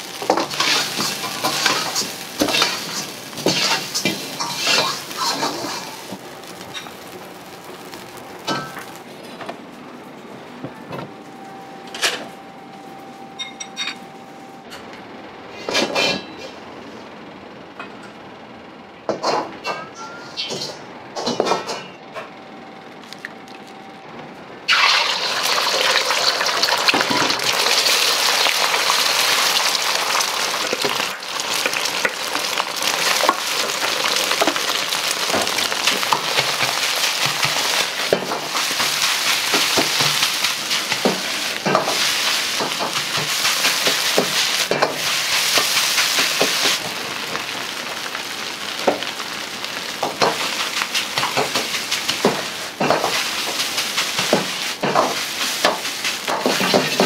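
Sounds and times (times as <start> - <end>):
eggs sizzling in hot oil: 0.0 - 9.1, 24.7 - 57.0
metal ladle scraping a wok: 0.4 - 6.0.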